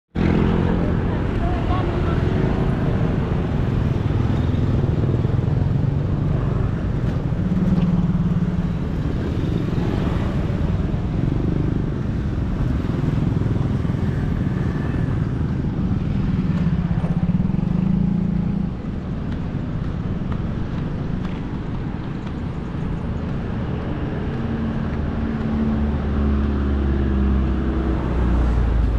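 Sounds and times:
motorcycle traffic engines: 0:00.1 - 0:28.9.

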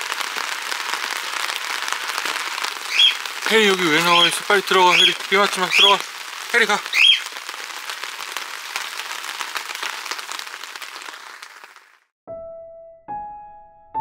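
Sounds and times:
rain pattering: 0:00.0 - 0:12.1.

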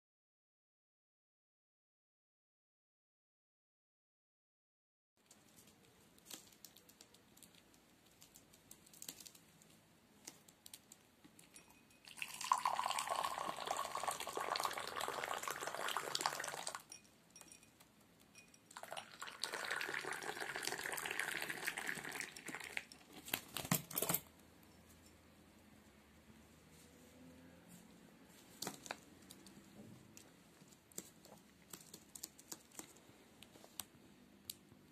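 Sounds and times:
glass clinks: 0:11.4 - 0:13.2, 0:16.8 - 0:19.0
tea pouring into a glass: 0:11.6 - 0:17.0, 0:18.7 - 0:23.0.

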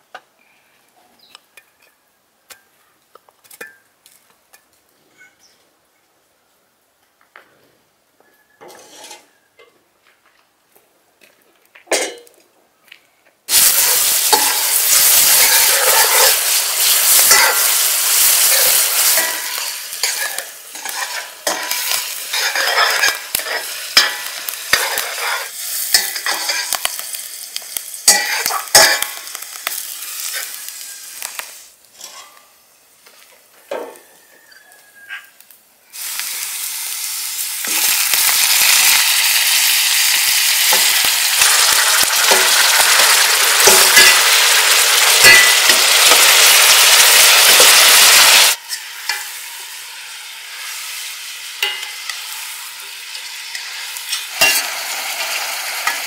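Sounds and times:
meat sizzling in a pan: 0:13.5 - 0:32.2, 0:35.9 - 0:56.0.

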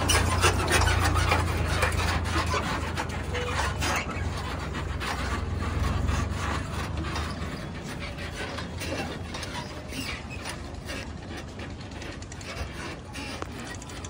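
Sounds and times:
tractor diesel engine: 0:00.0 - 0:14.0
trolley rattling over rough track: 0:00.0 - 0:14.0.

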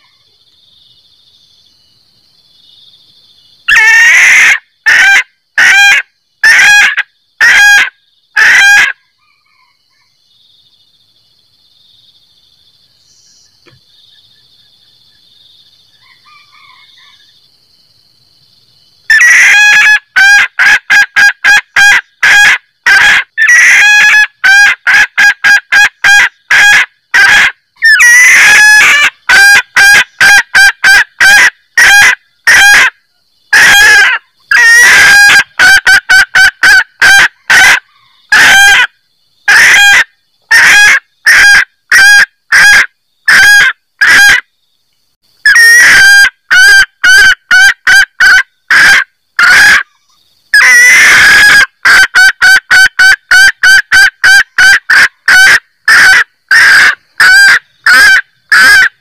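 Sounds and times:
junglefowl cackling call: 0:03.7 - 0:10.2, 0:16.0 - 0:17.3, 0:19.1 - 0:44.5, 0:45.4 - 0:59.0.

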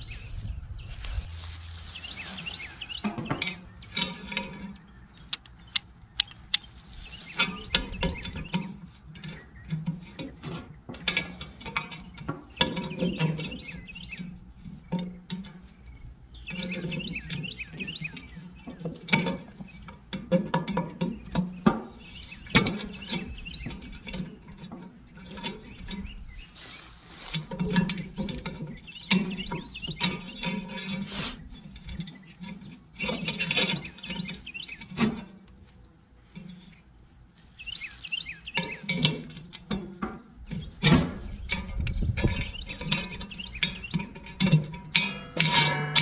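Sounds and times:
birds chirping: 0:00.0 - 0:46.0
wire handle clinking on cast iron pot: 0:41.5 - 0:46.0.

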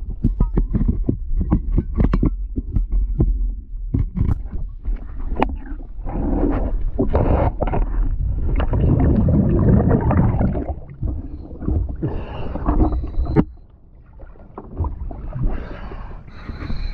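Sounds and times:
water rushing and bubbling: 0:04.8 - 0:16.9.

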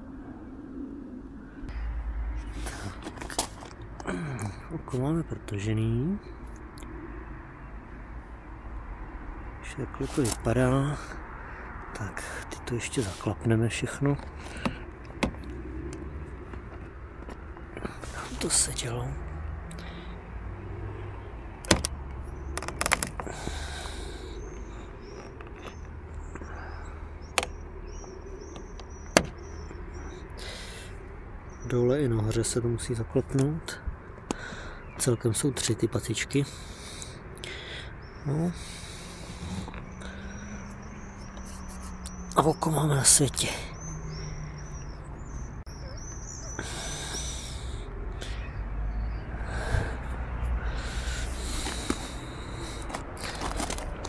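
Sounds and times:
sharp plastic clicks: 0:21.6 - 0:23.3.

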